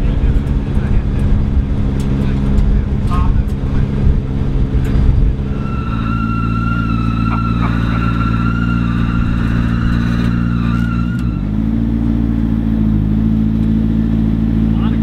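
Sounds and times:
engine idling: 0.0s - 15.0s
hydraulic liftgate whining: 4.9s - 11.6s.

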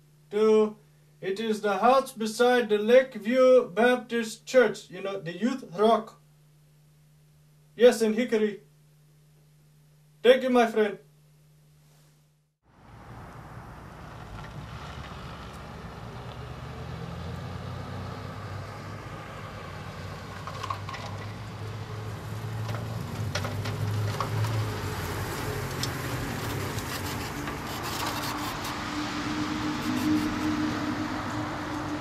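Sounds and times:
golf cart humming: 12.7s - 32.0s
light rattles and clicks: 20.4s - 21.8s, 22.6s - 24.8s.

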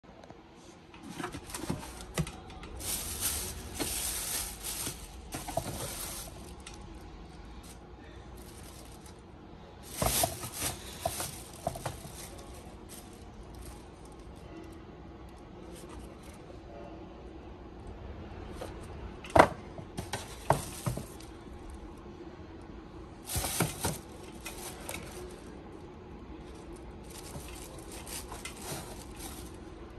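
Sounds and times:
cardboard and tissue paper rustling: 0.6s - 14.6s, 15.6s - 16.4s, 19.4s - 21.8s, 23.2s - 29.9s.

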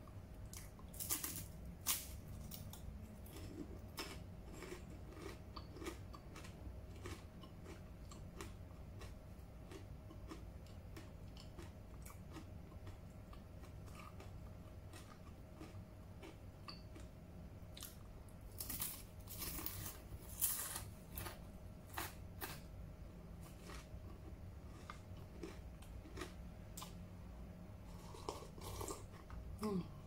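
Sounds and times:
crisps crunching: 0.5s - 7.8s, 17.8s - 22.6s.

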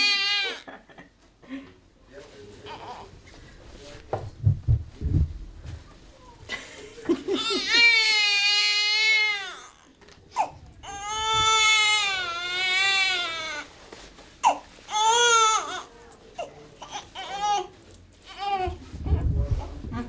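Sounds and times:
newborn baby crying: 0.0s - 0.7s, 2.7s - 3.1s, 7.3s - 13.7s, 14.4s - 17.7s.

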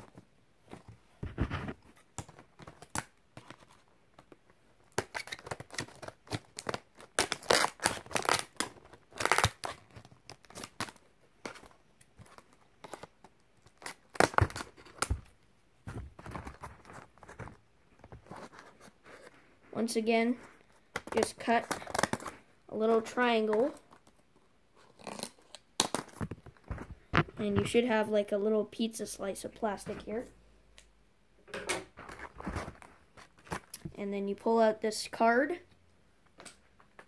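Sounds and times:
plastic packaging crackling: 4.9s - 15.3s, 20.6s - 22.4s.

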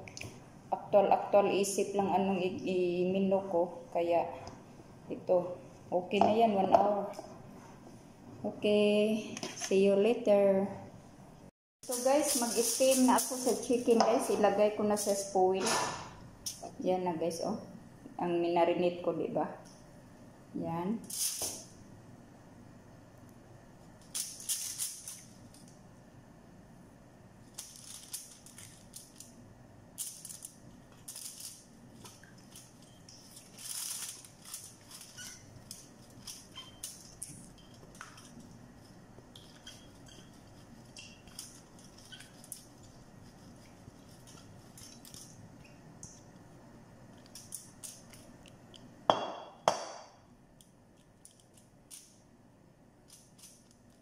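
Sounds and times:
spatula scraping bowl: 39.3s - 44.6s.

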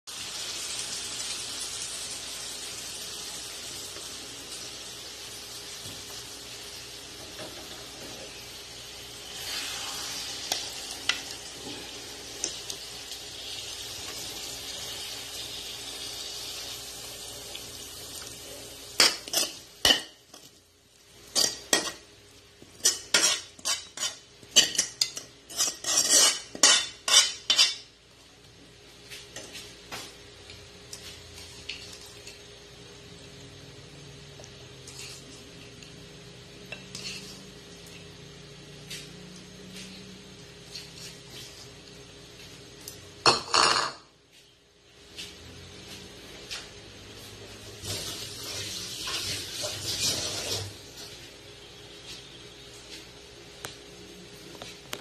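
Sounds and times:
food sizzling: 0.0s - 44.1s, 47.1s - 55.0s
utensil clinking and scraping cookware: 19.0s - 20.5s, 21.3s - 22.1s, 22.7s - 27.9s.

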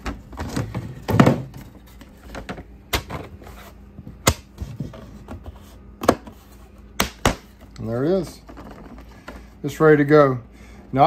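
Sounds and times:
plastic scraping and handling: 8.2s - 9.6s.

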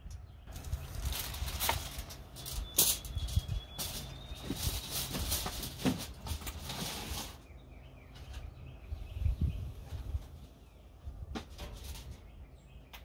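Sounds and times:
aluminum foil crinkling: 0.5s - 7.4s.

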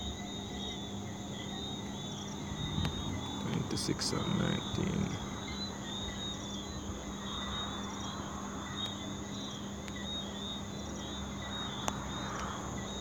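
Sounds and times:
low steady hum: 0.0s - 7.5s
insects chirping: 0.0s - 13.0s
faint ticks: 2.7s - 3.7s, 8.8s - 9.0s, 9.8s - 10.1s, 11.7s - 12.8s.

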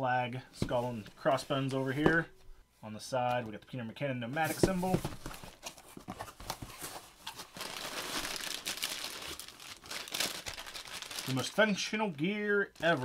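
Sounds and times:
plastic bag crinkling: 7.3s - 11.6s, 12.8s - 13.0s.

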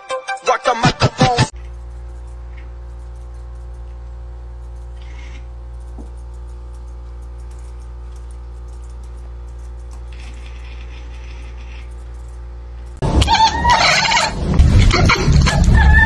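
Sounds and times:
steady low hum: 1.5s - 16.0s
cat mewing: 13.2s - 14.4s.

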